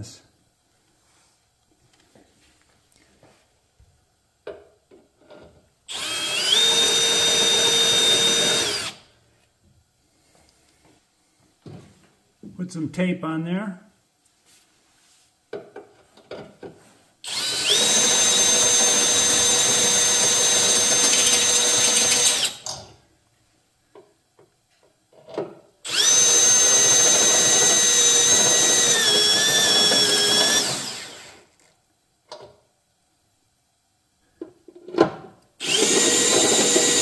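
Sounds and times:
drill motor whining: 5.9 - 9.0, 17.3 - 22.7, 25.9 - 31.4, 35.6 - 37.0.

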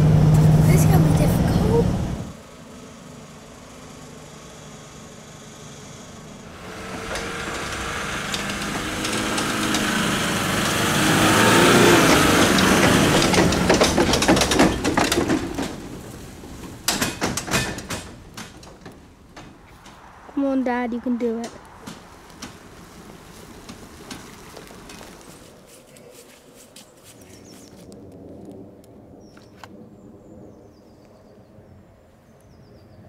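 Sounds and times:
diesel engine under load: 0.0 - 25.6
tyres crackling over dry leaves: 19.0 - 29.6.

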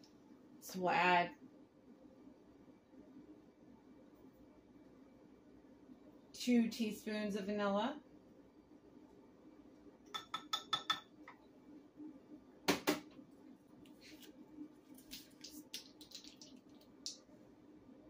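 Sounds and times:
metal spoon clinking on glass: 10.2 - 11.1.

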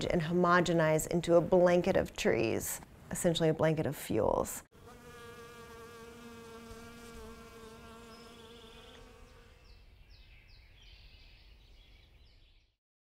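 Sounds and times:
bee buzzing in flight: 4.8 - 9.8.

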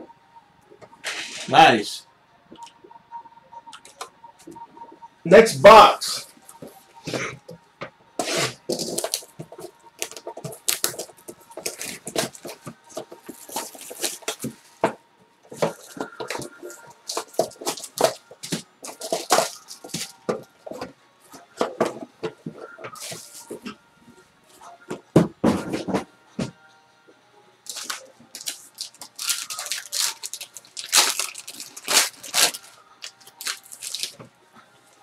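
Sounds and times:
plastic wrap tearing and crinkling: 8.2 - 9.3, 10.0 - 14.7, 15.8 - 20.2, 27.7 - 34.3.

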